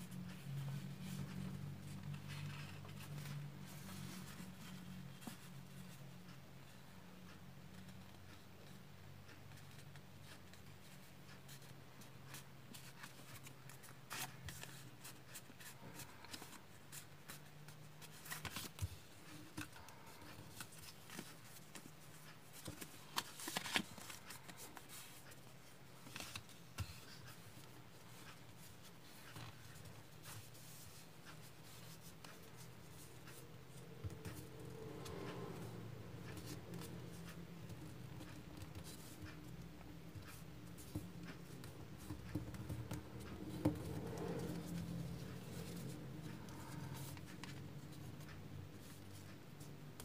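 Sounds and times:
paper rustling and crinkling: 12.3s - 33.4s.

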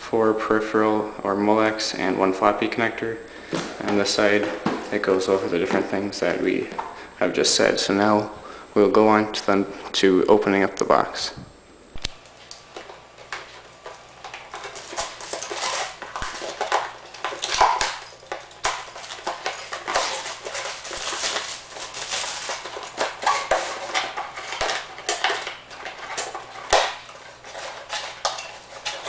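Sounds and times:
plastic wrap crinkling and tearing: 12.2s - 29.0s.

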